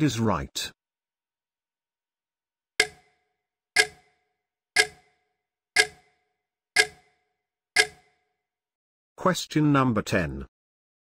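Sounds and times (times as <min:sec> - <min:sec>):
clock ticking: 0:02.8 - 0:03.2, 0:03.8 - 0:04.2, 0:04.8 - 0:05.2, 0:05.8 - 0:06.2, 0:06.8 - 0:07.2, 0:07.8 - 0:08.2.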